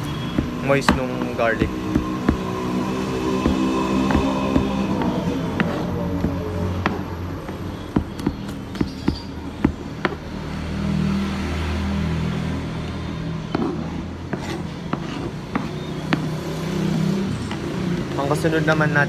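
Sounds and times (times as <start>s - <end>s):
low steady drone: 0.0s - 7.4s
knife chopping on a cutting board: 0.0s - 10.2s, 13.5s - 16.4s.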